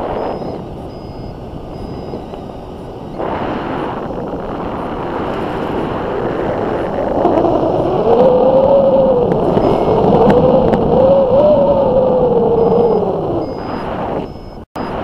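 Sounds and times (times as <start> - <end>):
continuous wavering tone: 0.0 - 15.0
wind rushing over microphone: 0.0 - 15.0.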